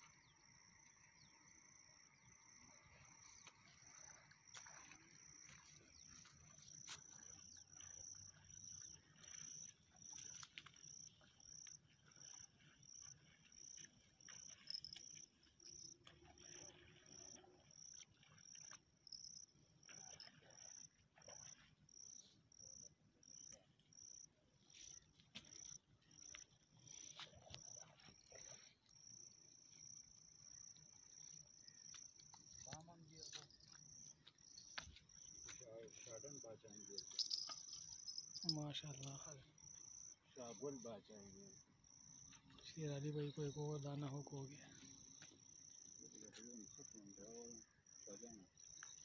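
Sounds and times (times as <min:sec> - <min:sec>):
insect trilling: 0:36.7 - 0:40.2.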